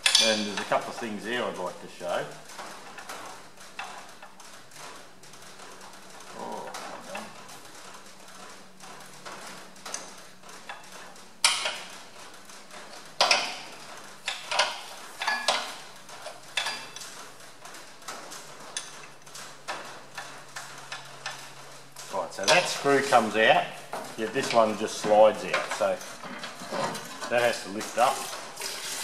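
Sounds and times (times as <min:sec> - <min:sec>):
spanner clicking on metal bolt: 0:13.2 - 0:13.6, 0:14.2 - 0:17.0.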